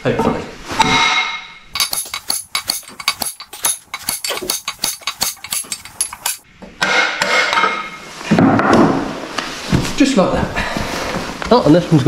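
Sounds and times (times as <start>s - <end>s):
hammer striking metal pipe: 0.8s - 7.8s.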